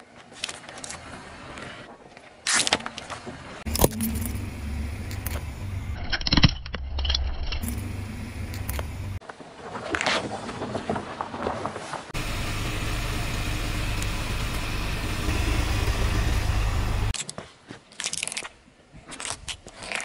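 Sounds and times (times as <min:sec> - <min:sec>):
car engine rumble: 0:03.6 - 0:09.2, 0:12.2 - 0:17.2
tyre crushing small objects: 0:17.1 - 0:20.0.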